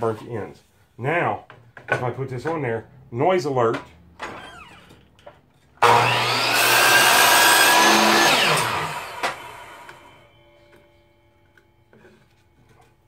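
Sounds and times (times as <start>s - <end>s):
chop saw cutting wood: 5.8s - 10.1s.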